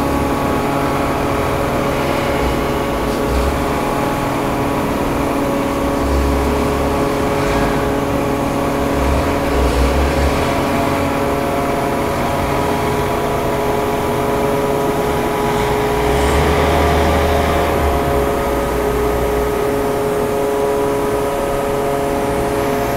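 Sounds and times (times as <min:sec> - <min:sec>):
forklift engine revving: 0:00.0 - 0:22.9
steady machine hum: 0:00.0 - 0:22.9.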